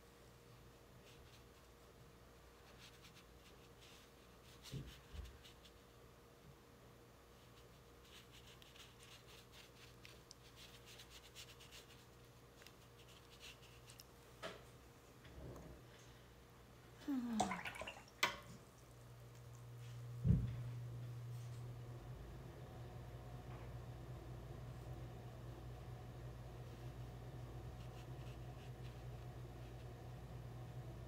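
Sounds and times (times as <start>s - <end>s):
low steady hum: 0.0s - 31.0s
paintbrush brushing on paper: 1.0s - 1.9s, 2.6s - 6.0s, 7.3s - 14.1s, 26.6s - 30.0s
soft thumps: 20.2s - 20.7s.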